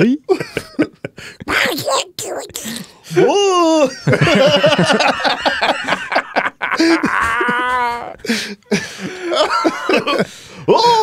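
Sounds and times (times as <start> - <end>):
men laughing: 0.3 - 1.5, 3.8 - 11.0
garbled high-pitched duck voice: 1.5 - 2.8.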